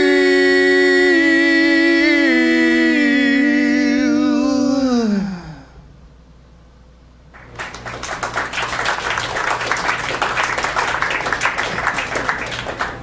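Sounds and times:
audience applause: 7.4s - 13.0s.

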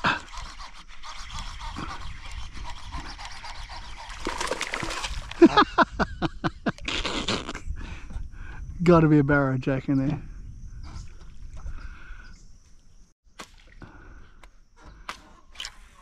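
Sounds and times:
water splashing: 4.0s - 5.6s.

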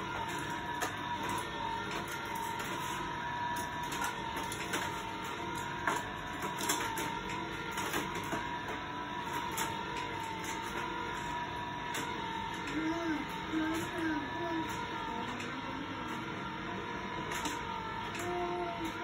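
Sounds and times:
toy elevator motor whirring: 0.0s - 19.0s
toy cars clicking on plastic: 0.1s - 15.8s, 17.3s - 19.0s.

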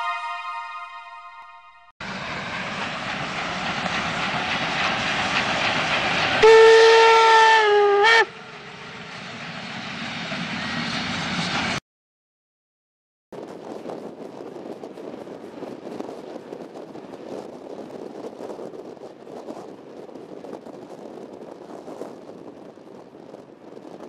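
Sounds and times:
wind rush: 2.0s - 7.0s, 7.6s - 11.8s, 13.4s - 24.0s
train wheels rumbling on rails: 2.0s - 11.8s, 13.4s - 24.0s
steam locomotive whistle: 6.4s - 8.4s.

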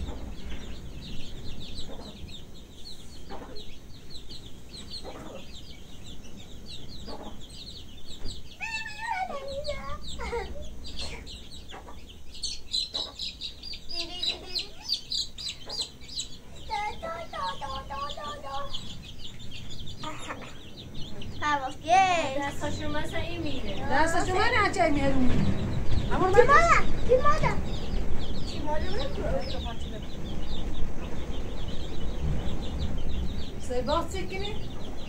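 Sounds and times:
rapid high chirps: 0.0s - 24.7s
chickens clucking: 0.0s - 35.0s
loud wavering calls: 0.0s - 35.0s.

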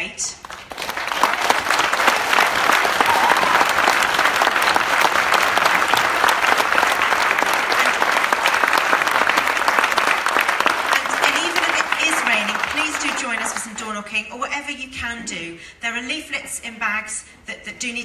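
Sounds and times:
large audience applauding: 0.4s - 13.9s.

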